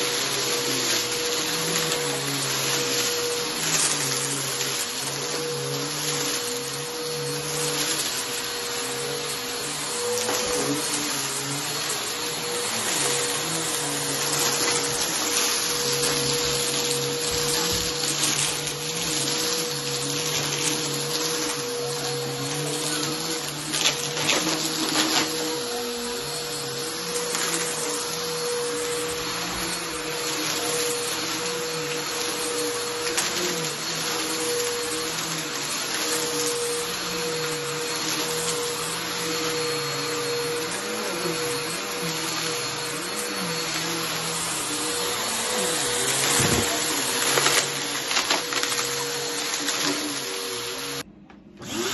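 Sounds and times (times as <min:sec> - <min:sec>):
upright vacuum cleaner running: 0:00.0 - 0:51.9.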